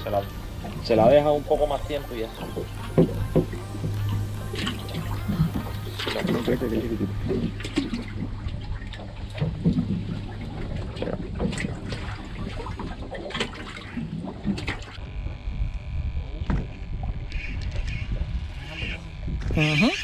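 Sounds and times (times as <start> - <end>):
water lapping against boat hull: 0.0 - 15.0
faint high whine: 0.0 - 20.0.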